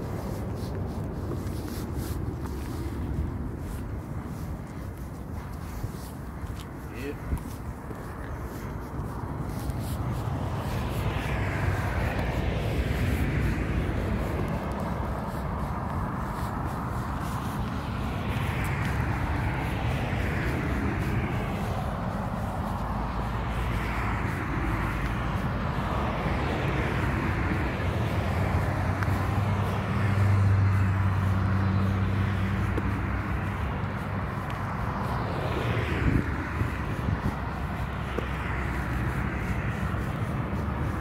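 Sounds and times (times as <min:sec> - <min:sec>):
cars passing: 0:00.0 - 0:41.0
vehicle engine humming: 0:00.0 - 0:41.0.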